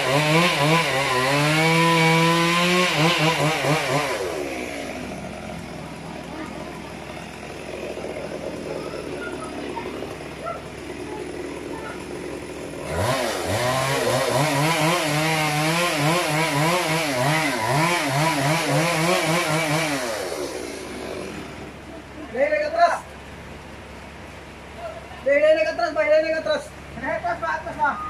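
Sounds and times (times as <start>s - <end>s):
chainsaw revving and cutting: 0.0s - 21.9s.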